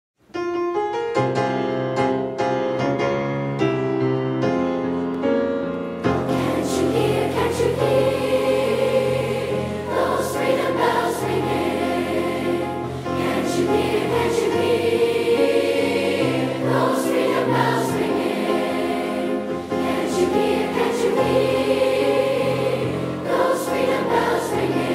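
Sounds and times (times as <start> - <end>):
piano notes: 0.3 - 24.9
choir singing a spiritual: 6.2 - 24.9.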